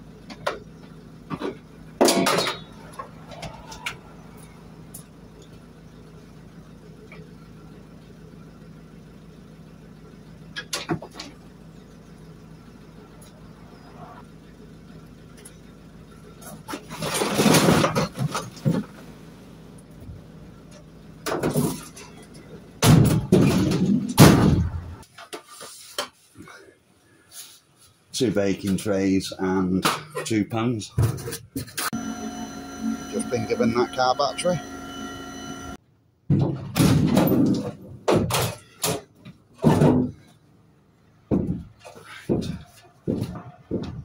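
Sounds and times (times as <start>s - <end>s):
appliance clattering on scrap: 0.3s - 4.1s, 16.4s - 19.1s, 21.2s - 26.0s, 36.3s - 40.4s, 41.3s - 44.0s
scrap metal bangs and scrapes: 16.4s - 19.0s
van doors slamming: 22.8s - 25.0s, 36.3s - 40.3s.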